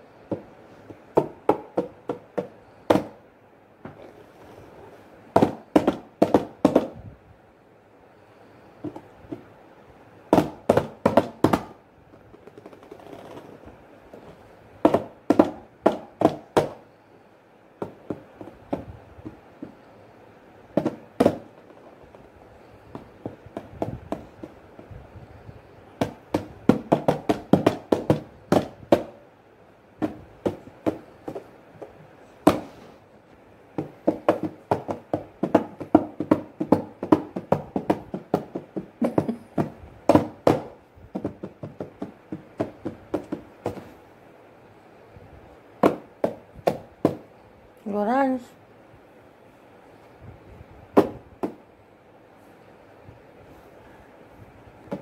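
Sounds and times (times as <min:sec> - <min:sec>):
hands slapping cardboard box: 0:00.3 - 0:03.2, 0:05.3 - 0:07.0, 0:10.3 - 0:11.8, 0:14.8 - 0:16.8, 0:20.8 - 0:21.7, 0:26.0 - 0:29.2, 0:30.0 - 0:32.9, 0:33.8 - 0:44.0, 0:45.8 - 0:47.3, 0:51.0 - 0:51.6.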